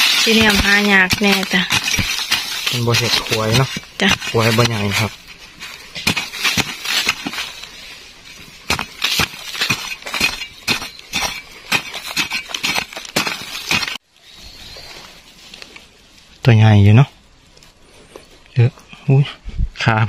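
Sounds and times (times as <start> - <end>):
metal tool digging into soil: 0.0 - 14.0.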